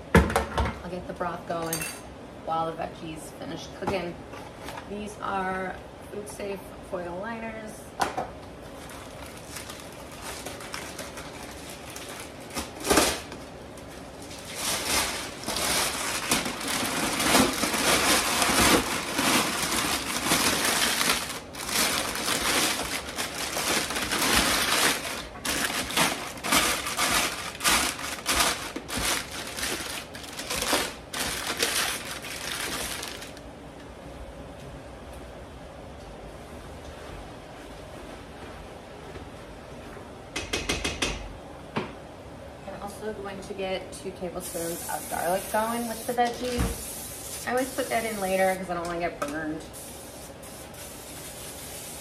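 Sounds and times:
aluminum foil crinkling: 8.8s - 33.4s.

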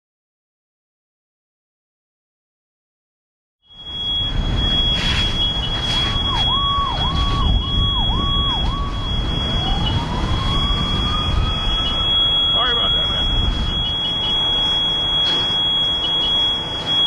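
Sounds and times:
high-pitched alarm tone: 3.7s - 17.0s
siren warbling: 3.7s - 17.0s
siren winding up: 3.7s - 17.0s
fire engines idling: 3.8s - 17.0s.

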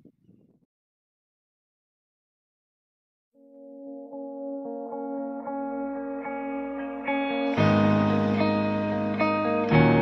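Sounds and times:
instrumental tune of held notes: 3.4s - 10.0s.

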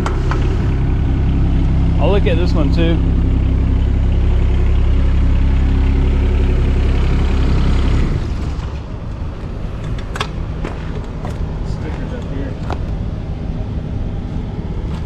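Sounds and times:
diesel engine idling: 0.0s - 15.0s.

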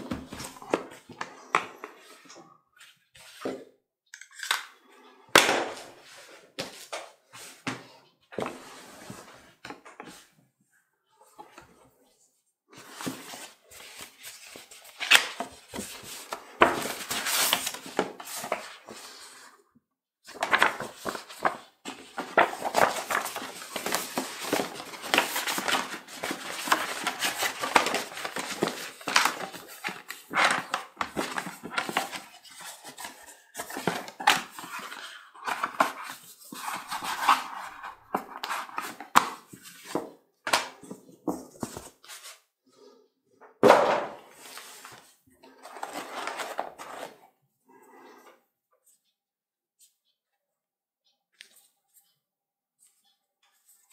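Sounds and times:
cardboard packaging rustling: 12.8s - 19.3s, 20.3s - 40.0s, 44.3s - 47.2s.

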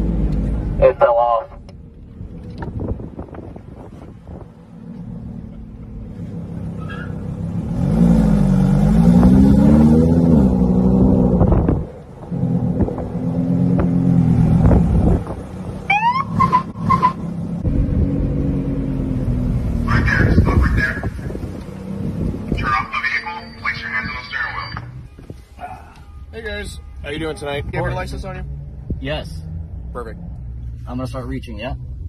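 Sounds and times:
car engine revving: 2.1s - 25.0s
police siren chirp: 15.9s - 17.2s, 22.7s - 27.1s.

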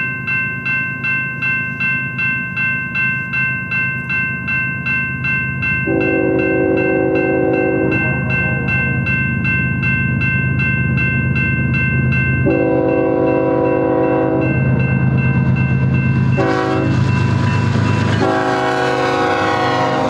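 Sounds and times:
crossing signal bell ringing: 0.0s - 20.0s
locomotive engine droning: 3.2s - 20.0s
locomotive horn blasts: 5.9s - 8.7s, 12.5s - 14.5s, 16.4s - 17.0s, 18.2s - 20.0s.

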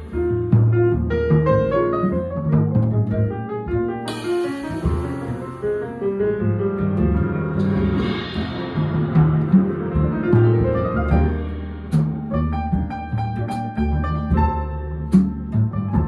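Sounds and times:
double bass: 0.0s - 16.0s
piano notes: 0.0s - 16.0s
cymbal swell: 4.1s - 6.0s
cymbal crash: 4.1s - 6.2s, 7.6s - 12.2s.

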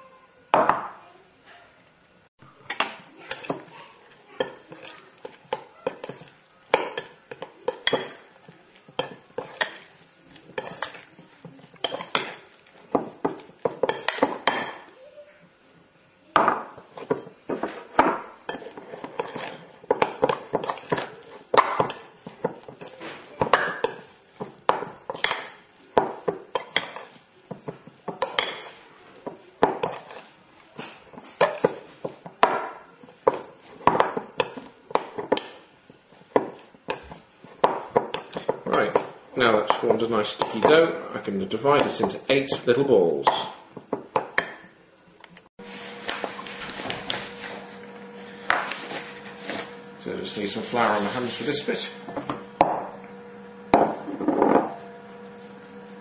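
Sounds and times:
metal spoon scraping glass bowl: 10.5s - 11.2s, 18.5s - 21.3s, 29.8s - 30.3s.

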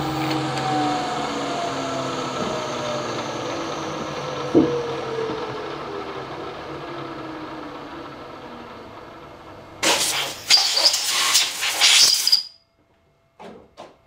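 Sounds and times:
milling machine spindle winding down: 0.0s - 11.1s
air blow gun hissing bursts: 9.8s - 12.4s.

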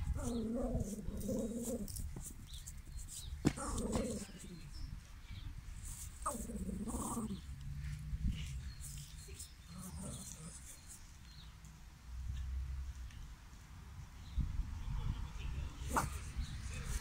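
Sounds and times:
small dog barking: 15.9s - 16.2s.

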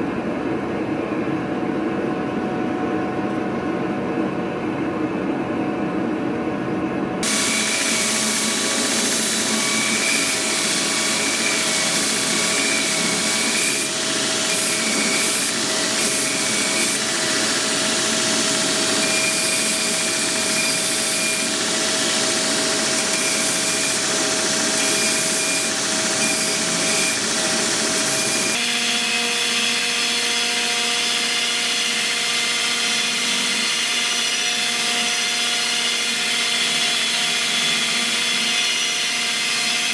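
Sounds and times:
belt grinder motor whine: 7.2s - 39.9s
metal grinding rasp: 8.7s - 28.6s.

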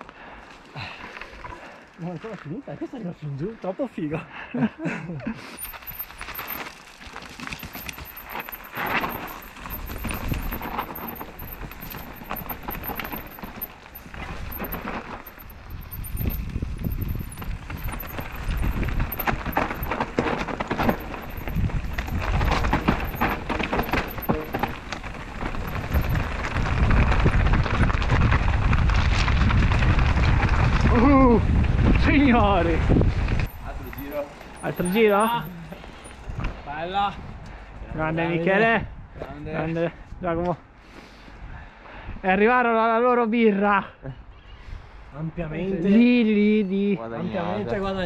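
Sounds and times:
tyres crunching over loose stones: 0.4s - 3.1s, 5.6s - 36.4s
bike rattling over rocks: 5.5s - 36.5s
wind rumbling on microphone: 5.6s - 39.5s.

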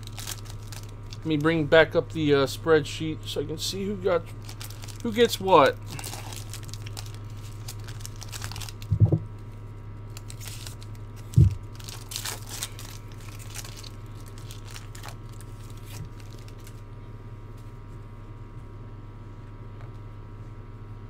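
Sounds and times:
foil wrapper tearing and crinkling: 0.0s - 1.5s, 4.3s - 9.0s, 10.1s - 16.8s
dull knocks: 8.9s - 9.3s.

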